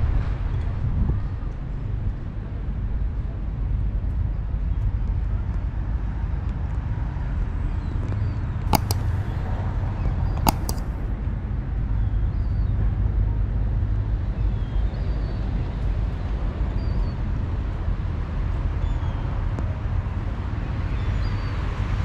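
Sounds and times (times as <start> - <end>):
traffic rumble: 8.4 - 14.3
sharp double clicks: 8.7 - 9.7, 10.3 - 11.1.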